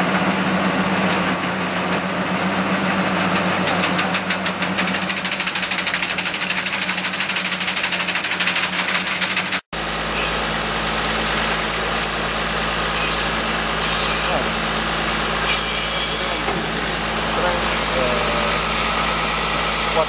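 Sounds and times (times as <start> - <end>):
harvester engine running: 0.0 - 20.0
shaker rods beating foliage: 2.6 - 9.6.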